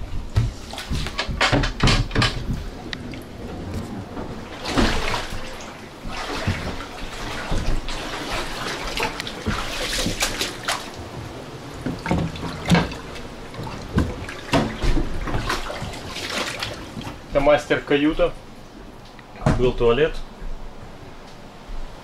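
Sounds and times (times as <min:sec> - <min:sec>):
water sloshing and splashing: 0:00.0 - 0:19.8
sharp knocks: 0:00.3 - 0:02.8.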